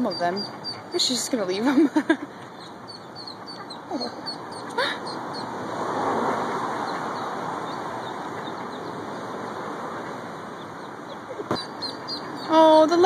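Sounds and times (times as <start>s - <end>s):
ducklings peeping: 0.0s - 5.6s, 6.8s - 13.0s
vehicle driving past: 4.3s - 11.4s.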